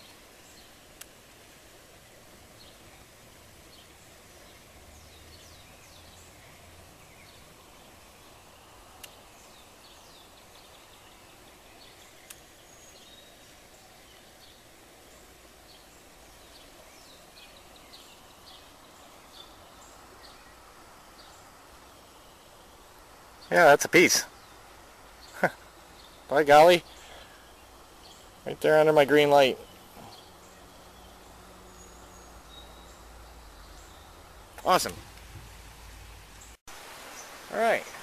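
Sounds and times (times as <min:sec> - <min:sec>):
small birds chirping: 0:00.0 - 0:38.0
faint clicks: 0:01.0 - 0:01.2, 0:09.0 - 0:09.2, 0:12.2 - 0:12.5.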